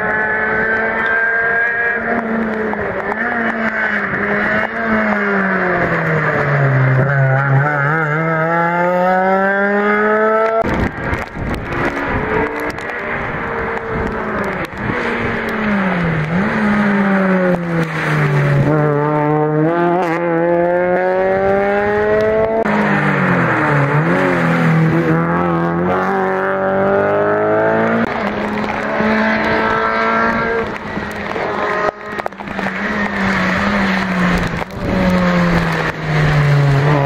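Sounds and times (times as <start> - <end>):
rally car engine revving: 0.0 - 37.0.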